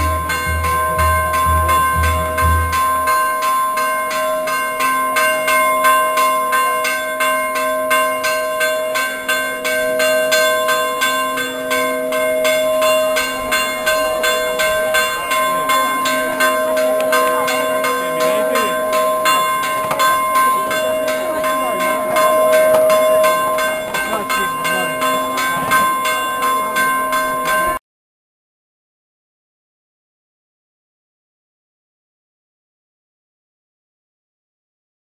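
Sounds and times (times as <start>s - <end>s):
church bells ringing peal: 0.0s - 27.8s.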